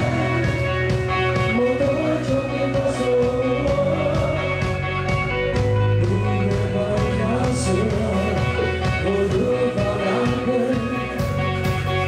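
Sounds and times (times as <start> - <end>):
bass guitar: 0.0 - 12.0
distorted electric guitars: 0.0 - 12.0
drum kit with cymbal hits: 0.0 - 12.0
person singing: 0.0 - 12.0.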